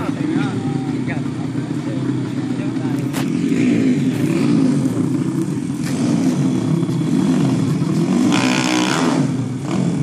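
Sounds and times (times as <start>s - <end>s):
motorcycle engines racing: 0.0s - 10.0s.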